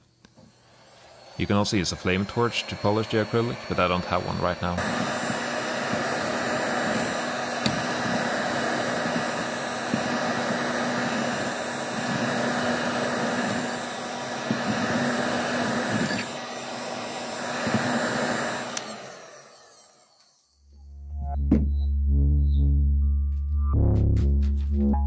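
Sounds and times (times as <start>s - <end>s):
heat gun blowing air: 0.0s - 20.6s.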